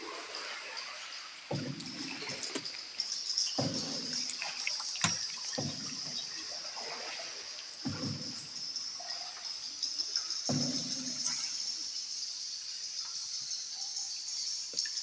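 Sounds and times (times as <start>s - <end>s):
paddle splashing water: 0.0s - 11.9s.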